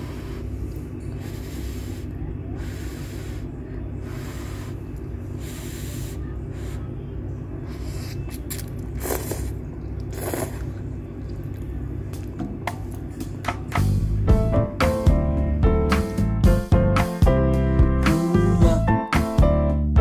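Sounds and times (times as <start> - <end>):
steady low hum: 0.0 - 19.6
person slurping noodles: 7.7 - 10.8.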